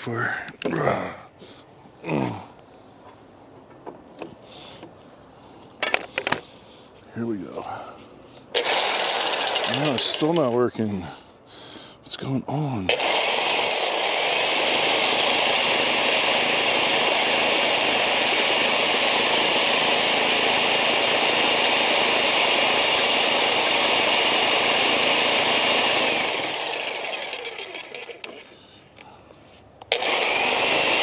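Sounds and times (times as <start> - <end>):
electric demolition hammer running: 8.6 - 10.6, 12.9 - 29.1, 29.9 - 31.0.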